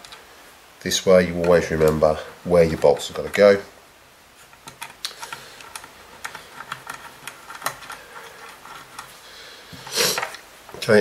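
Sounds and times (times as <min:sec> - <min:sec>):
small metal screws clicking: 0:04.5 - 0:09.1.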